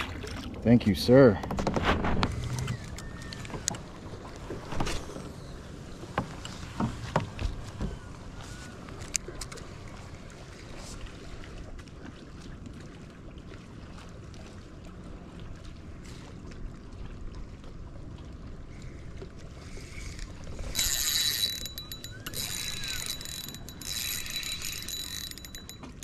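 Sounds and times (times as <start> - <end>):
fishing reel gears whirring: 19.8 - 26.0.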